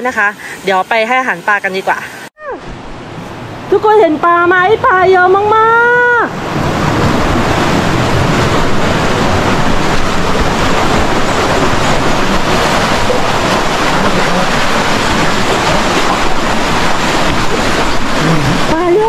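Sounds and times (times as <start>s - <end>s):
fast-flowing river rushing: 5.4s - 19.0s.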